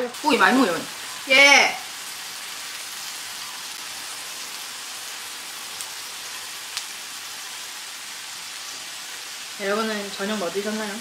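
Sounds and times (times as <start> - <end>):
food sizzling on grill pan: 0.0 - 11.0.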